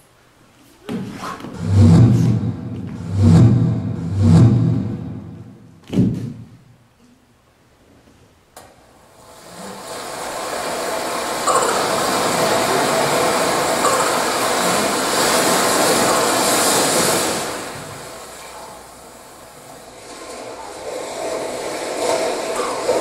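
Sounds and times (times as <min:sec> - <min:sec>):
loud rushing noise: 0:01.5 - 0:05.8, 0:09.2 - 0:18.5.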